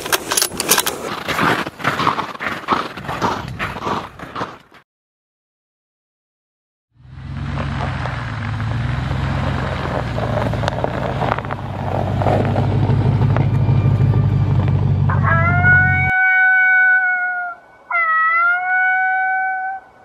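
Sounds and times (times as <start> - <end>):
tyres crackling over packed snow: 0.0 - 4.8, 7.4 - 13.4
pickup truck engine running: 7.2 - 16.1.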